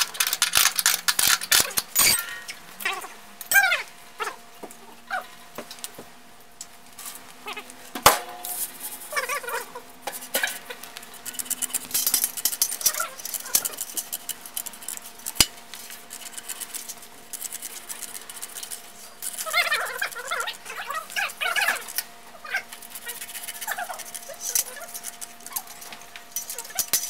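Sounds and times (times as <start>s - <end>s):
short squeaks: 2.0s - 2.6s
rustling and scraping: 6.9s - 27.0s.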